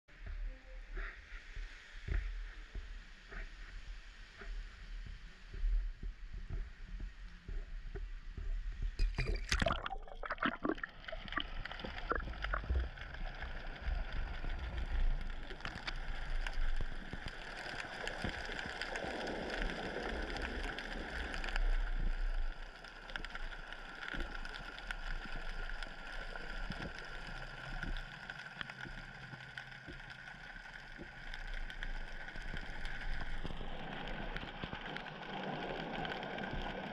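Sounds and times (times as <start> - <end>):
wind rumble on camera: 0.1 - 9.7, 11.3 - 30.1, 30.9 - 36.9
faint steady underwater tone: 0.1 - 36.9
underwater clicks: 4.3 - 36.9
camera splashing into water: 9.0 - 10.8.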